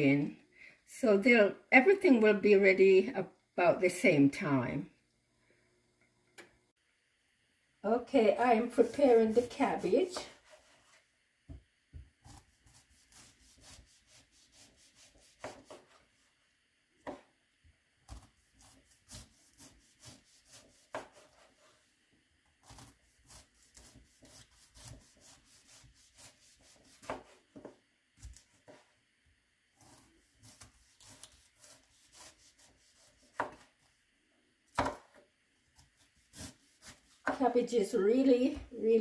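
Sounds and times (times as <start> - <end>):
knife slicing cabbage: 8.6 - 11.0, 12.2 - 16.0, 18.0 - 21.7, 22.6 - 28.9, 29.8 - 33.8, 34.7 - 37.5.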